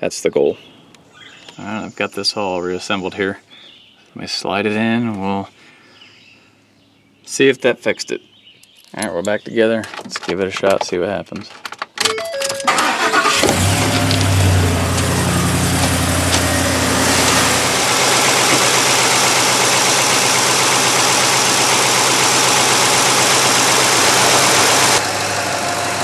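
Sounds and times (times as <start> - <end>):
truck engine starting and idling: 12.1 - 26.0.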